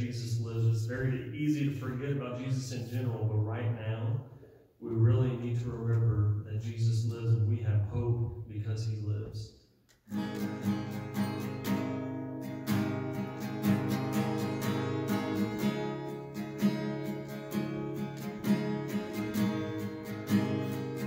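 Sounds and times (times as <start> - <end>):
acoustic guitar strumming: 10.1 - 21.0.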